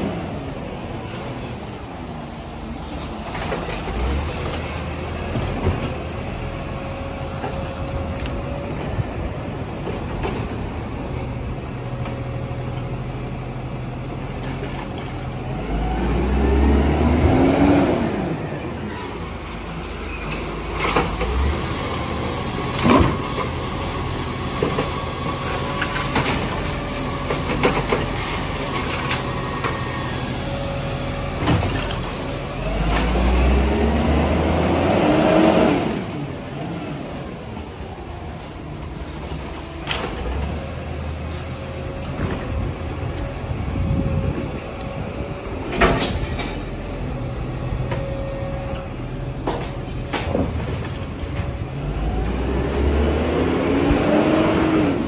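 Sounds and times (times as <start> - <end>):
garbage truck engine revving: 15.4 - 38.5, 48.6 - 55.0.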